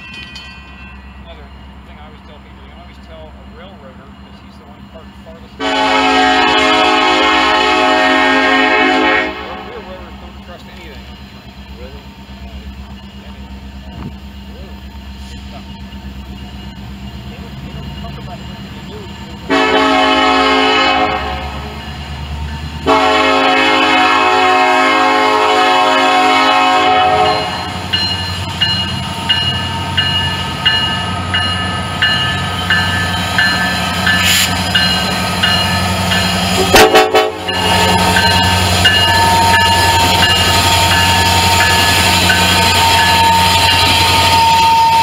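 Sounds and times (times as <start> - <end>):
bell dinging: 0.0 - 1.6, 27.3 - 36.5, 37.5 - 44.8
diesel engines droning: 1.1 - 45.0
locomotive air horn blasts: 5.6 - 9.9, 19.5 - 21.7, 22.8 - 27.7, 36.6 - 38.3.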